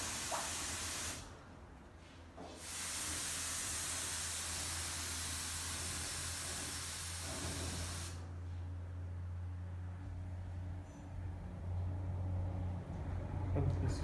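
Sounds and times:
compressed air hissing: 0.0 - 1.3, 2.5 - 8.2.

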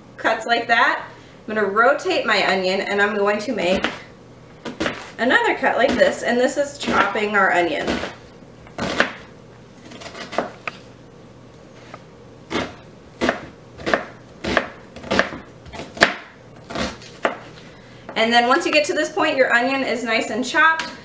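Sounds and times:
knife chopping onion on cutting board: 4.6 - 5.1, 8.8 - 9.3, 10.0 - 10.7, 12.5 - 17.5.

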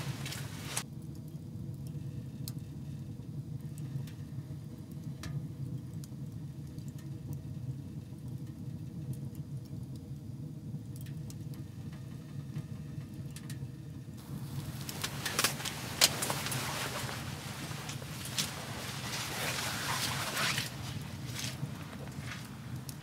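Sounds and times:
fire crackles: 0.0 - 23.0
wood fire rumbling in stove: 0.0 - 23.0.

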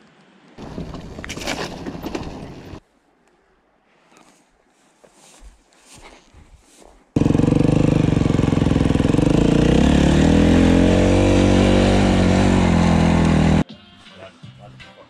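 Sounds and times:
dirt bike engine revving: 7.2 - 13.6.

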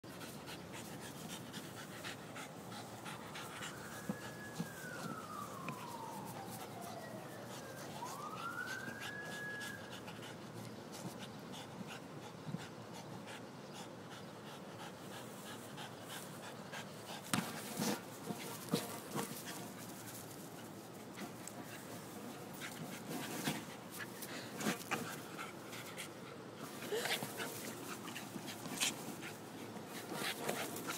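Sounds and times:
dog panting: 0.1 - 4.8, 9.9 - 19.7, 21.5 - 30.9
siren wailing: 2.7 - 10.2.

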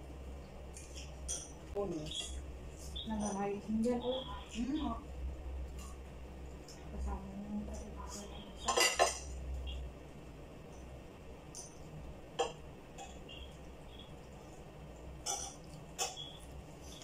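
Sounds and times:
spoon clinking on ceramic plates: 8.6 - 9.3, 15.2 - 16.3.

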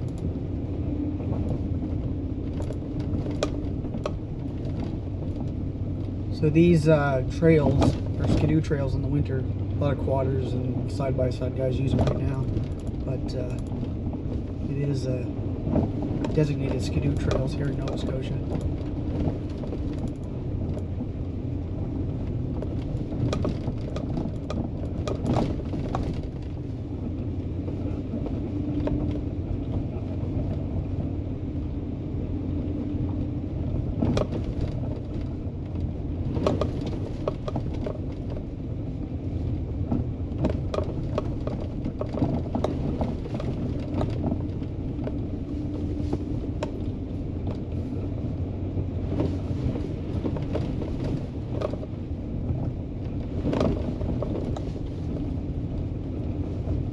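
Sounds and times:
vehicle engine running: 0.0 - 56.9
knocks and rattles from bumps: 7.4 - 10.2, 11.8 - 14.9, 22.5 - 26.7, 33.7 - 38.5, 39.8 - 46.8, 49.0 - 51.9, 52.5 - 55.3.

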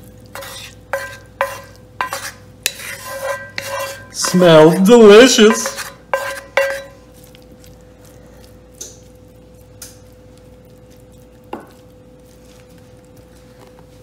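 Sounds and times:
faint steady hum: 0.0 - 14.0
wooden spoon scraping dish: 0.3 - 7.0
spoon knock: 5.4 - 7.0.

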